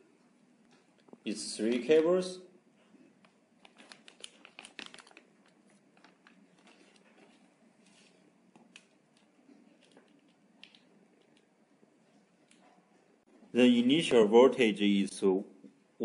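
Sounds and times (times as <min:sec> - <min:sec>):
plastic bag crinkling: 0:03.6 - 0:11.4.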